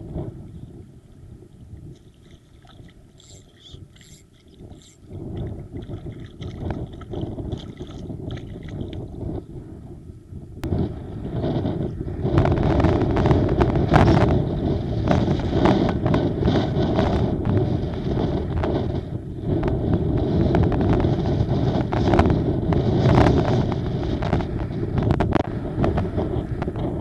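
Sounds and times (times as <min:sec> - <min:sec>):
choppy sea water splashing: 0:00.0 - 0:09.7
wind buffeting microphone: 0:00.0 - 0:27.0.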